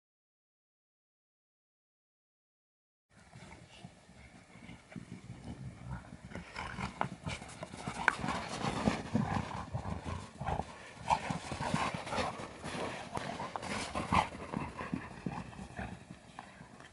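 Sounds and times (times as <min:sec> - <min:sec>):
dog paws crunching on snow: 0:07.3 - 0:16.0.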